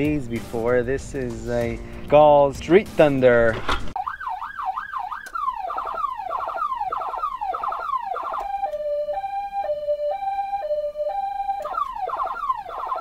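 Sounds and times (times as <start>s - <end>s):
electronic siren sweeping and hi-lo: 4.0s - 13.0s.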